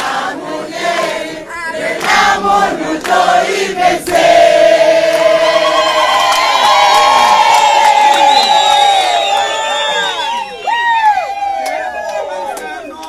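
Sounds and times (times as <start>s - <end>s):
crowd singing in chorus: 0.0s - 6.7s.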